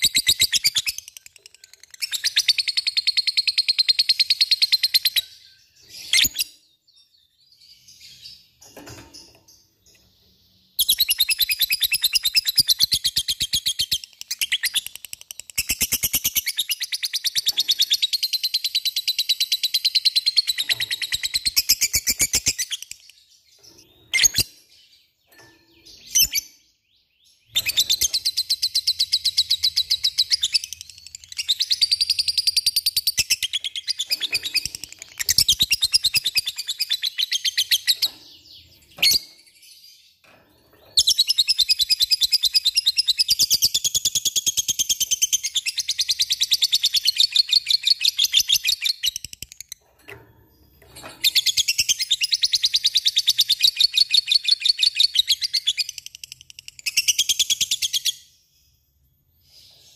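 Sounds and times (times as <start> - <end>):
lovebird high-pitched trills: 0.0 - 6.7, 9.2 - 40.1.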